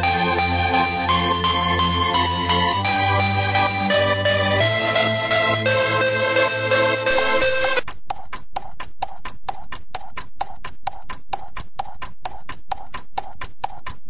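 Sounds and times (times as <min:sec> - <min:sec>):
knocking electronic percussion: 0:00.0 - 0:14.0.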